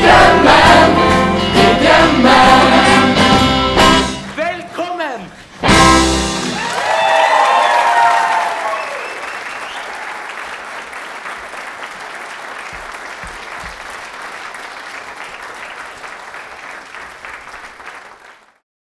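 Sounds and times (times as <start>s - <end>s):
audience applauding: 6.2s - 18.6s.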